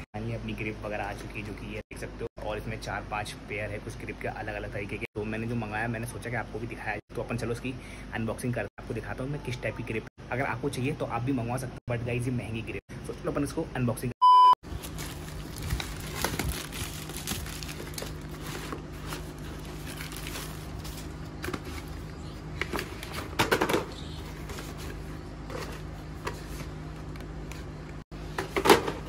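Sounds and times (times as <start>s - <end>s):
test-tone beep: 14.2s - 14.6s
plastic mailer bag tearing and crinkling: 14.7s - 21.9s.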